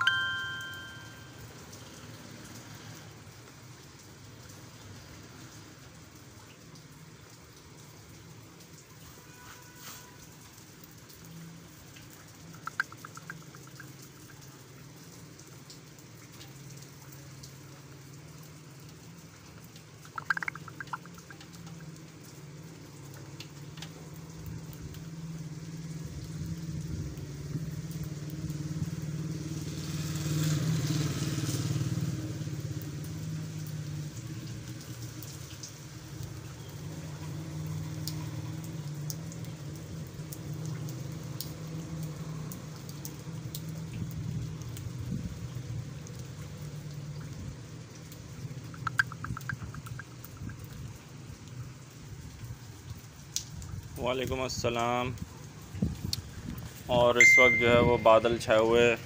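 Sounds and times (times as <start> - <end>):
tyres hissing on wet road: 0.0 - 57.2
vehicle engine hum: 35.9 - 51.8.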